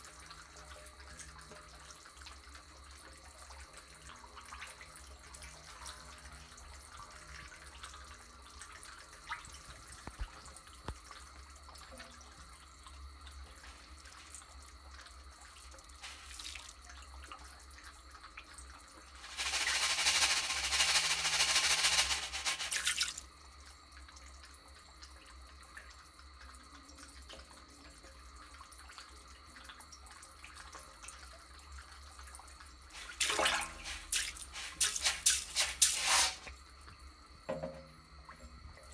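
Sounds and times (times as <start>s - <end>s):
water trickling: 0.1s - 19.6s
feed pellets pattering on water: 16.0s - 16.8s, 19.2s - 23.2s, 32.9s - 36.5s
sharp splashes and clicks: 19.2s - 23.2s, 33.0s - 36.2s.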